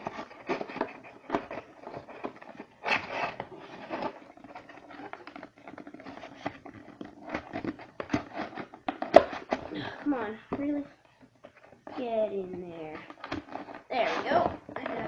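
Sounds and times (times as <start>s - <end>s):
cardboard box being folded: 0.0s - 10.2s.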